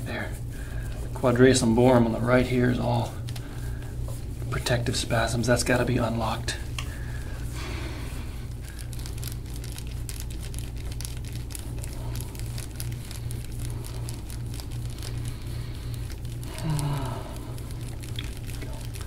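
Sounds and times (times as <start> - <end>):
low electrical hum: 0.0 - 19.0
crinkling clicks from back massage: 2.8 - 4.3, 6.7 - 7.1, 8.5 - 19.0.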